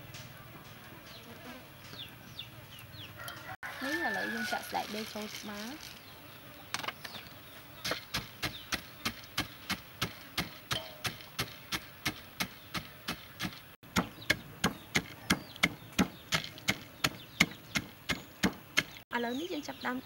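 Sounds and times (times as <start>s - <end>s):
wooden pestle pounding in mortar: 7.8s - 19.0s.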